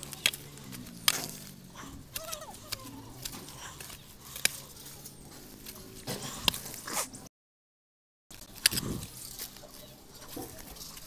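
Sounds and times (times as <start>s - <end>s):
wooden pole clicking in mud: 0.0s - 4.8s.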